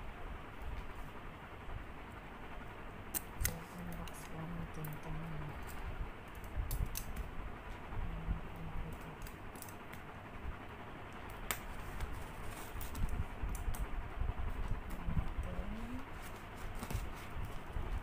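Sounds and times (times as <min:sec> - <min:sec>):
scissors cutting packing tape: 0:03.1 - 0:04.3, 0:09.0 - 0:10.0, 0:11.3 - 0:13.8, 0:15.8 - 0:17.7.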